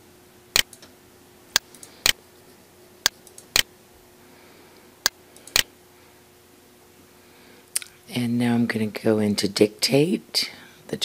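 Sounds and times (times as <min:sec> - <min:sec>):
faint steady hum: 0:00.0 - 0:11.0
computer mouse clicks: 0:00.6 - 0:00.9, 0:03.1 - 0:03.7, 0:05.4 - 0:05.7.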